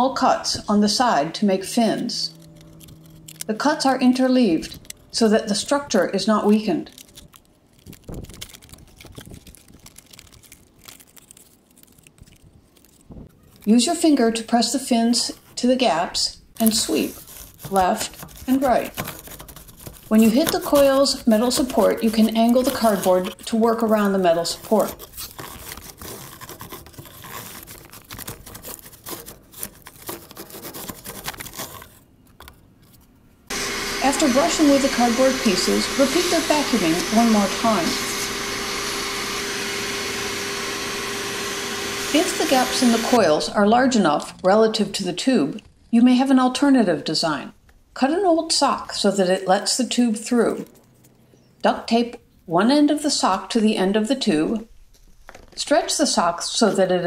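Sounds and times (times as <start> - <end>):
brush scraping on metal coil: 1.3 - 5.8, 16.6 - 32.0
brush clicking on wire: 1.7 - 5.2
cardboard crinkling: 1.7 - 14.0, 16.6 - 33.3.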